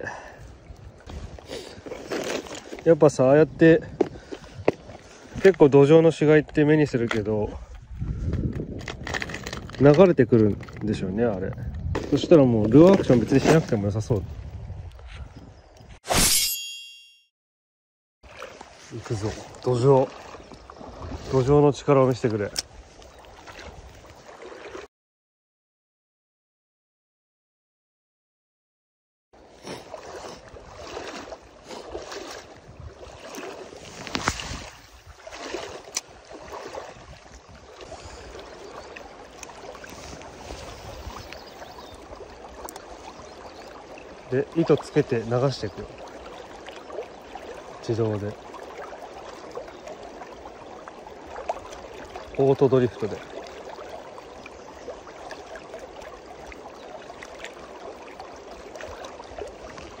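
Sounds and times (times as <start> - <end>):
wind rumble on microphone: 0.4 - 1.9, 7.0 - 16.0, 31.8 - 39.0, 39.7 - 43.6.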